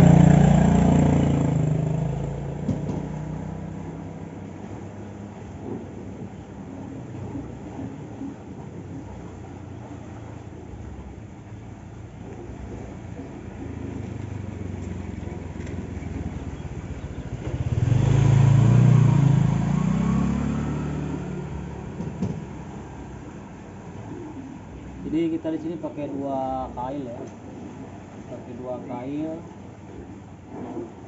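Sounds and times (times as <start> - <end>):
vehicle engine passing by: 0.0 - 5.8, 12.6 - 23.4.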